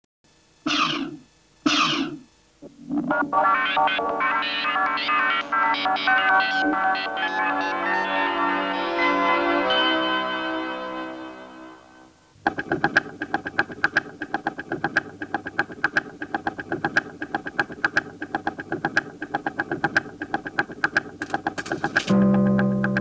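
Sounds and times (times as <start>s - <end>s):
clockwork ticking: 12.4s - 23.0s.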